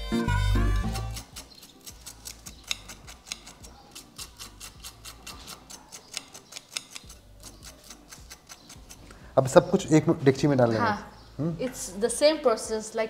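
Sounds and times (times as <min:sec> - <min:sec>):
knife scraping on a plate: 0:00.8 - 0:09.1.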